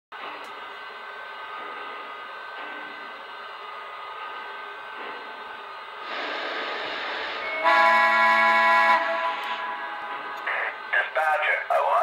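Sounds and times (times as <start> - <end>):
model train steam hiss: 6.0 - 7.4
locomotive whistle chord: 6.1 - 10.7.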